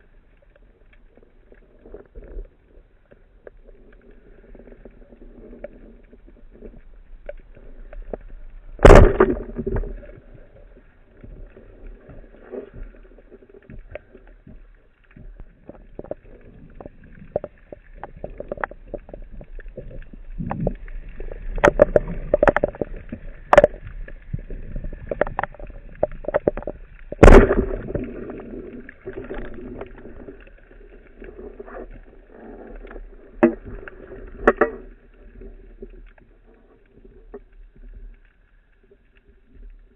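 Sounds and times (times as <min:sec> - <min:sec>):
underwater hum: 0:00.0 - 0:39.9
sharp crack: 0:08.8 - 0:10.0, 0:27.2 - 0:28.6.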